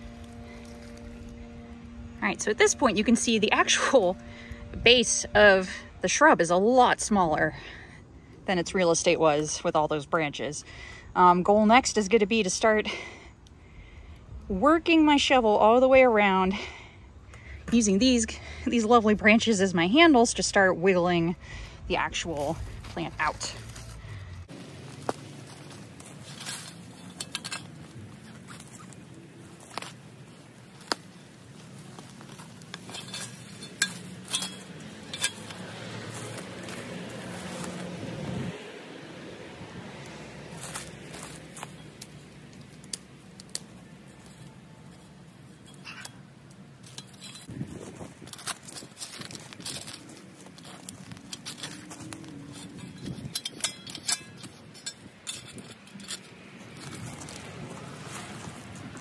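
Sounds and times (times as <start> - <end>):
steady low hum: 0.0 - 57.4
shovel scraping into soil: 22.0 - 38.5, 40.5 - 46.2, 46.8 - 59.0.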